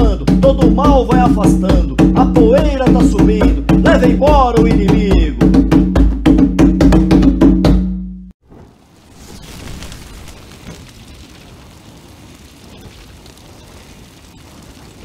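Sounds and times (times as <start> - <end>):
drum hits: 0.0 - 8.3
steady hiss with small pops: 8.4 - 15.0.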